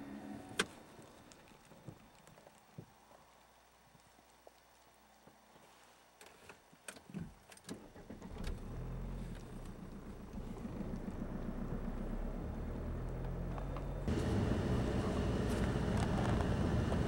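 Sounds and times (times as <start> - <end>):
vehicle engine starting and running: 7.7 - 17.0.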